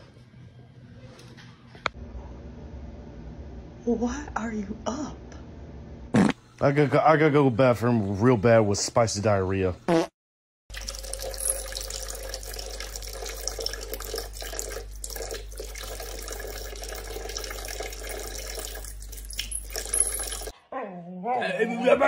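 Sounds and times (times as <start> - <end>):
faucet running into sink: 10.7 - 20.5.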